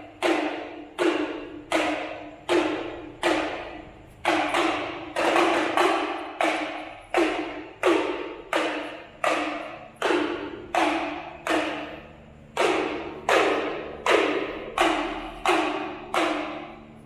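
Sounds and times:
drum hits ringing: 0.0 - 17.0.

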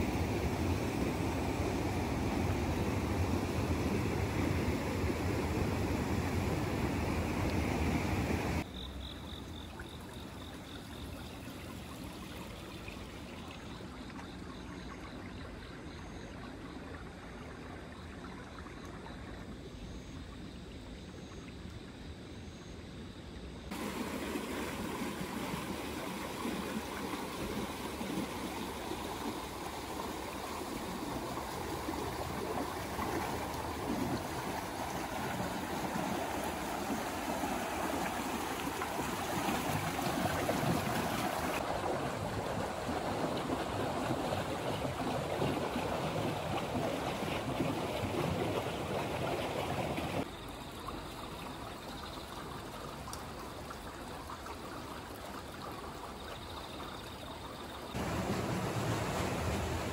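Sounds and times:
running water rushing: 0.0 - 8.7, 23.7 - 59.9.

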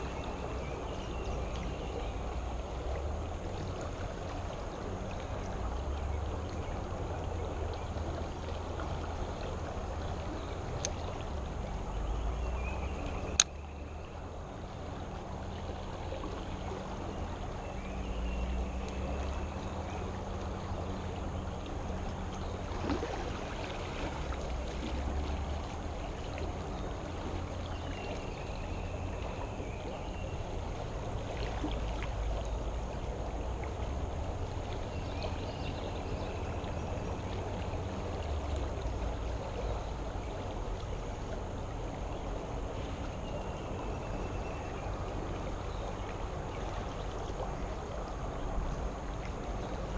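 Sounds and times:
creek water rushing: 0.0 - 49.9.

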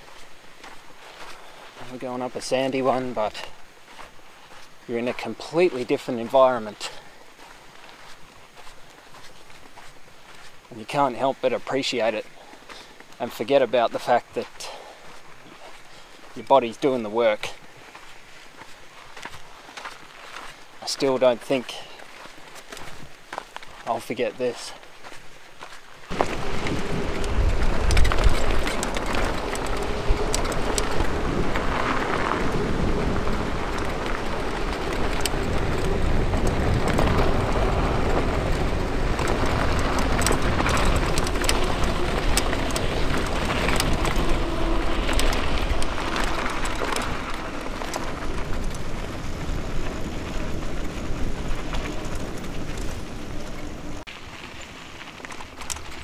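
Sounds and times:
bike tyres rolling on gravel: 0.0 - 56.0
bike rattling and clicking: 21.4 - 24.6, 26.0 - 56.0
wind rumble on microphone: 26.1 - 54.1.

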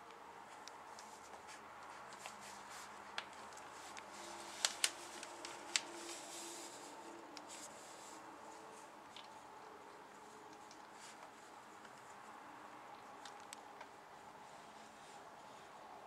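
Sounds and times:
newspaper and bedding crinkling: 0.0 - 9.3.

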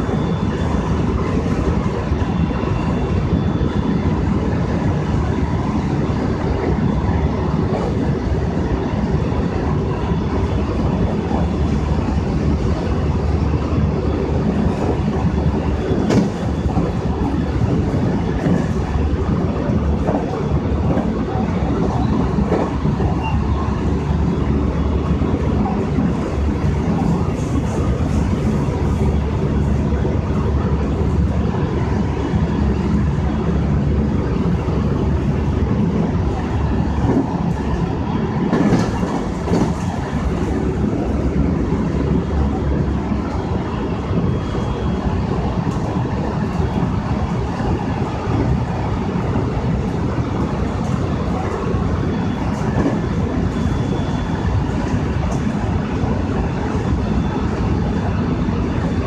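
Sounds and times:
electric train rumbling at speed: 0.0 - 59.0
wheels clicking over rails: 32.6 - 44.7.

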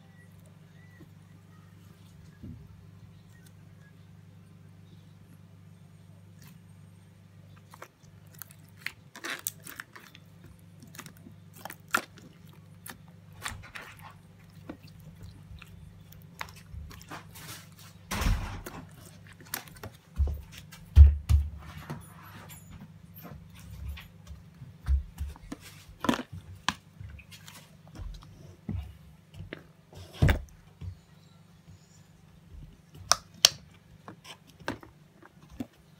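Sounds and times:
slime squelching by hand: 7.5 - 20.7.

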